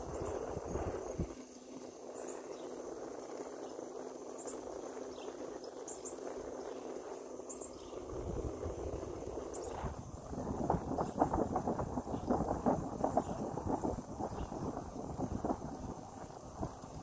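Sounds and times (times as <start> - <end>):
wind rumble on microphone: 0.0 - 3.6, 7.6 - 17.0
insects trilling: 0.0 - 17.0
steady rushing hiss: 0.0 - 17.0.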